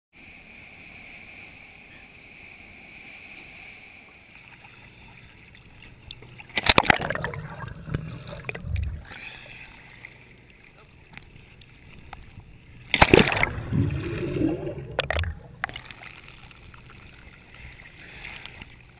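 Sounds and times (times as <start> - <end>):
water rushing along boat hull: 0.4 - 18.9
muffled underwater bubbling: 6.2 - 9.4, 12.0 - 16.0
diver splashing into water: 6.5 - 9.2, 12.9 - 16.0.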